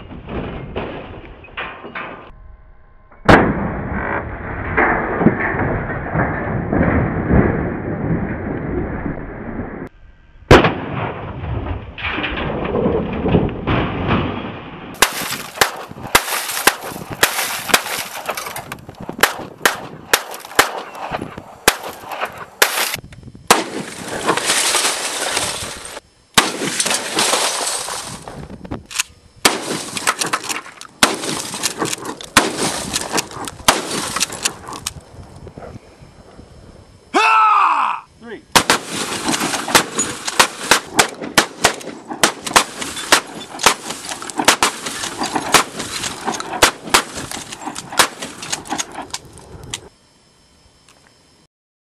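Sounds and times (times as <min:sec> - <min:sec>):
gunshots: 0:03.3 - 0:07.6, 0:10.5 - 0:12.5, 0:13.1 - 0:18.6, 0:19.2 - 0:28.2, 0:28.9 - 0:34.9, 0:38.5 - 0:49.1.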